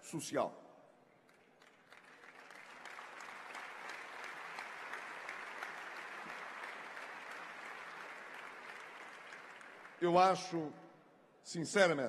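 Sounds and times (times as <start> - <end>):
audience applauding: 1.3 - 10.5.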